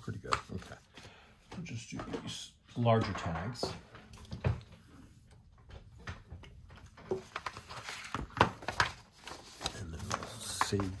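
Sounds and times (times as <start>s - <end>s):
paper rustling: 0.0s - 1.2s, 6.8s - 11.0s.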